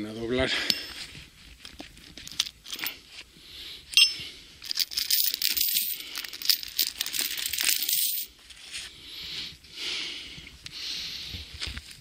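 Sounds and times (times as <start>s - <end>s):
ringing metal clink: 4.0s - 4.3s
chain links rattling: 4.0s - 8.3s.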